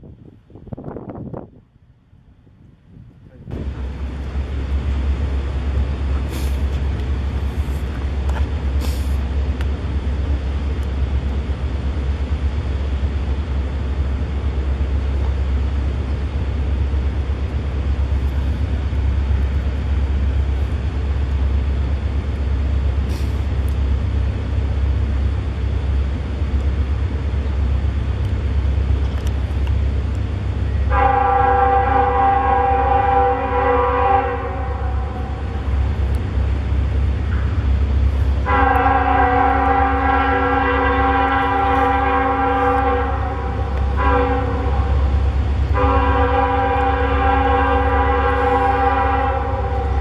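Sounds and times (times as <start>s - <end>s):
diesel locomotive engine rumble: 0.0s - 50.0s.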